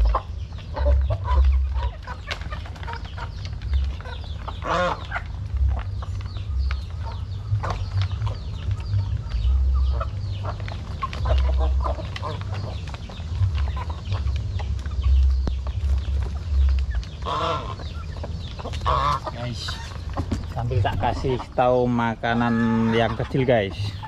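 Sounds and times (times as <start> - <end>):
chickens clucking: 0.0 - 24.0
chicken squawk: 4.0 - 5.4, 17.2 - 24.0.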